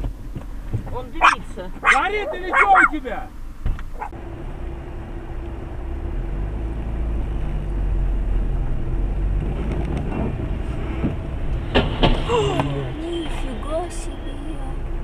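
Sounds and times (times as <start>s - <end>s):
constant hum: 0.0s - 5.8s
car engine and road rumble: 0.0s - 15.0s.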